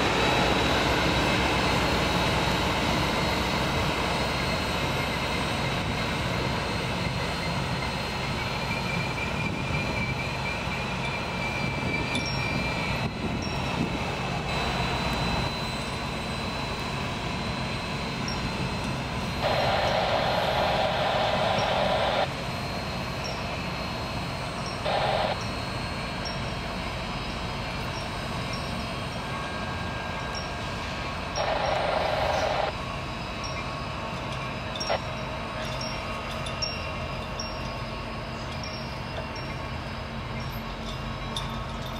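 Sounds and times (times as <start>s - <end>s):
diesel locomotive rumbling: 0.0s - 41.9s
loud hiss: 19.4s - 22.3s.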